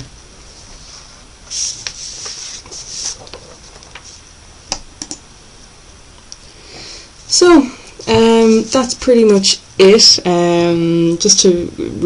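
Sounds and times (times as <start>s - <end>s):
faint rustling: 0.0s - 4.4s, 6.7s - 9.4s
sharp clicks: 4.7s - 5.2s.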